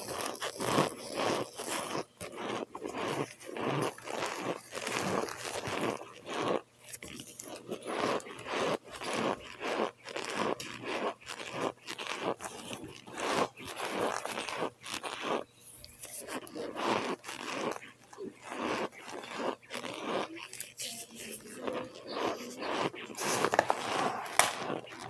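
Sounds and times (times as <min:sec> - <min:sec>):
chewing crunchy food: 0:00.0 - 0:25.0.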